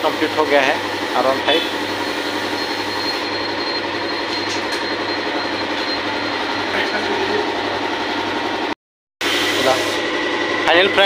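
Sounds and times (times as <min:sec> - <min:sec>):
motorcycle engine idling: 0:10.0 - 0:11.0.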